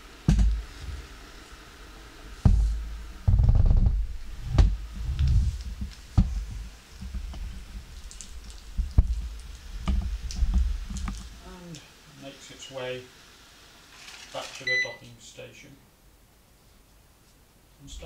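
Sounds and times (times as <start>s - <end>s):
low thumps: 0.2s - 1.0s, 2.4s - 7.9s.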